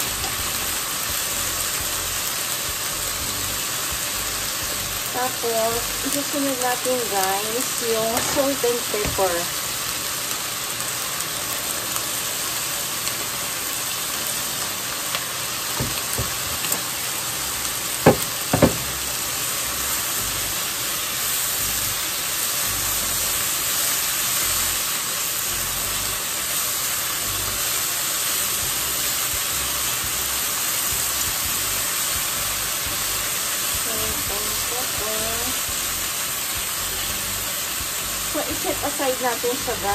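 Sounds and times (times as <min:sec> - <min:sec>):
chicken sizzling in a frying pan: 0:00.0 - 0:39.9
chopsticks knocking on pan: 0:15.8 - 0:16.6, 0:18.1 - 0:19.0.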